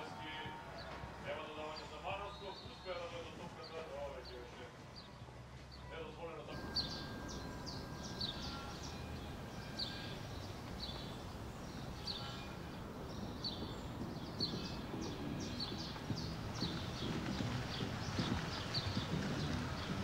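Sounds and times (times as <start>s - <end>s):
bird chirping: 0.0s - 5.9s, 6.5s - 20.0s
low background rumble: 6.5s - 20.0s.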